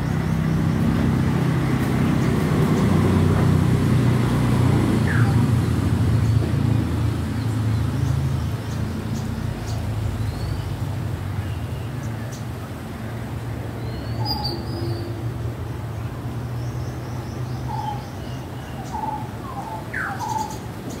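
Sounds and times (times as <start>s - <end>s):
birds chirping: 4.4s - 13.0s, 13.7s - 21.0s.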